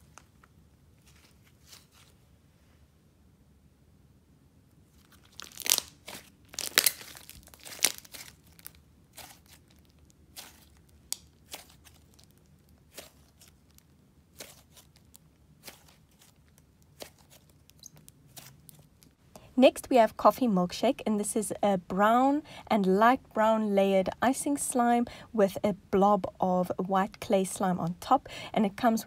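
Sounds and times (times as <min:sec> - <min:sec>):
slime squeezed by hand: 0:05.0 - 0:19.0.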